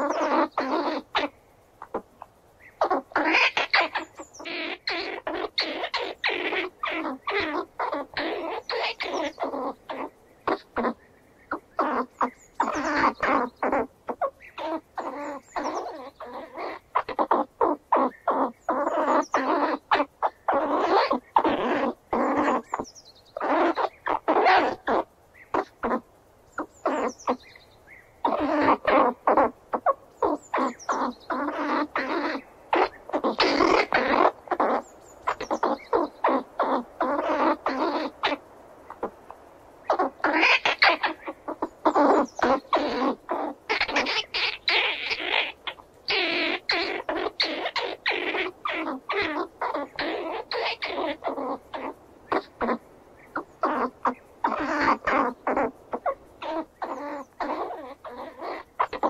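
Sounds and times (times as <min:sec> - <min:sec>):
squirrel chattering: 0:00.0 - 0:27.6, 0:28.2 - 0:59.0.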